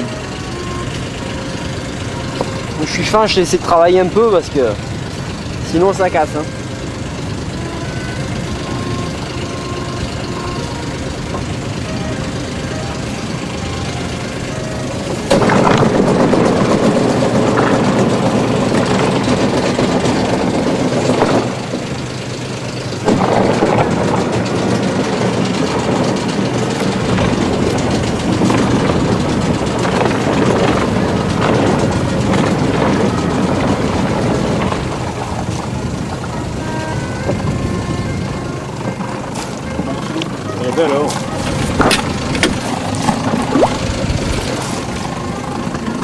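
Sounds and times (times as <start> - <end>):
boat engine running: 0.0 - 46.0
water noise: 0.0 - 46.0.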